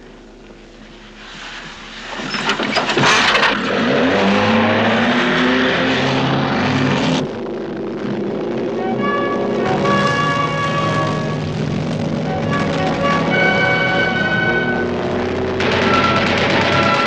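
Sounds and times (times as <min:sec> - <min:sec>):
engine revving and accelerating: 0:03.0 - 0:17.0
sharp cracks: 0:15.3 - 0:17.0.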